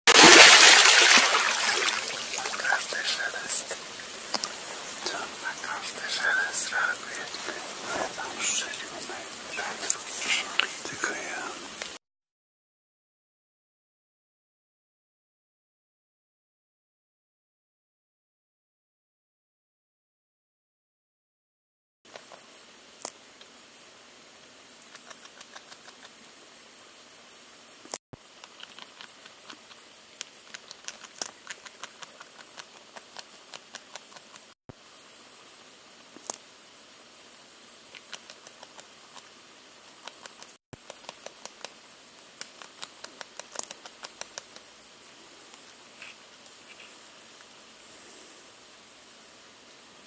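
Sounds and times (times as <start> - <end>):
insects chirping: 0.1 - 12.0, 22.1 - 50.0.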